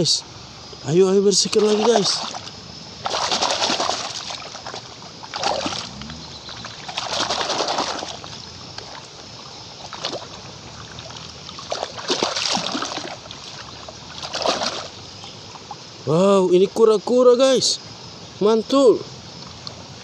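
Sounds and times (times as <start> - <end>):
steady watery hiss: 0.0 - 20.0
hand splashing in water: 1.4 - 5.9, 6.5 - 9.1, 11.0 - 14.9.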